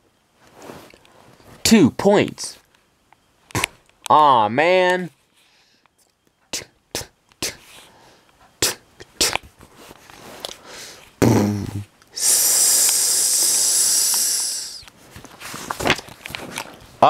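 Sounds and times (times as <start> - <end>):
person hissing with mouth: 6.6 - 7.7, 8.6 - 9.4, 11.2 - 14.8.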